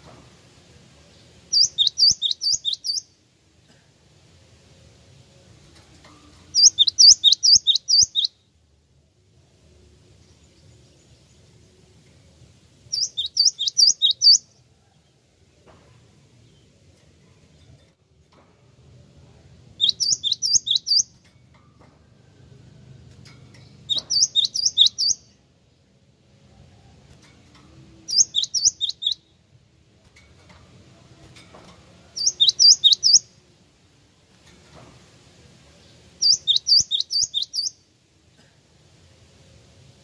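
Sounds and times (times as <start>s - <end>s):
bird singing high notes: 23.9s - 25.2s, 28.1s - 29.3s.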